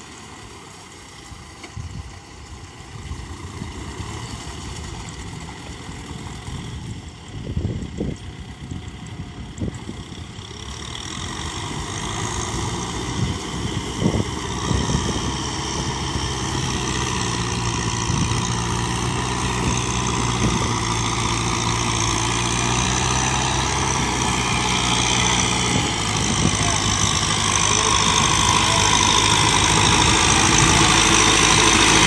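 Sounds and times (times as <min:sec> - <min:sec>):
tractor diesel engine running: 0:00.0 - 0:32.0.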